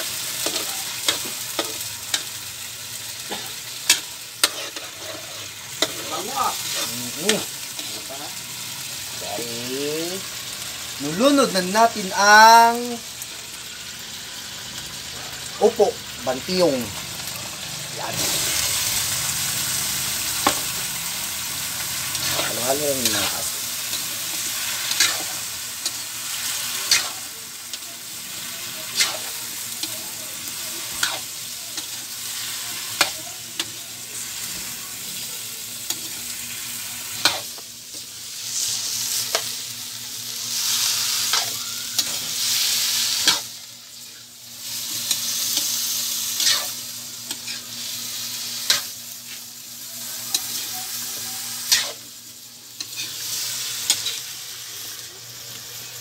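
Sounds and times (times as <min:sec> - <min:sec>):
food sizzling in a wok: 0:00.0 - 0:56.0.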